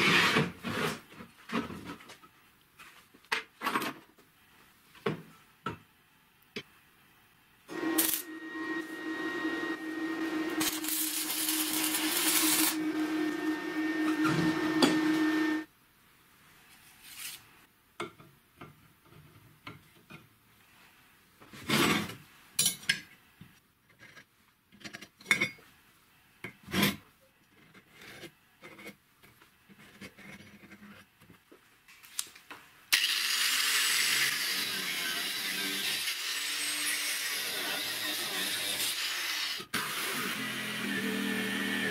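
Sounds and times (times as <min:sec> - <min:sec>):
arc welding crackling: 0:07.7 - 0:09.0, 0:09.8 - 0:13.6
angle grinder on steel: 0:07.7 - 0:15.7, 0:32.9 - 0:41.9.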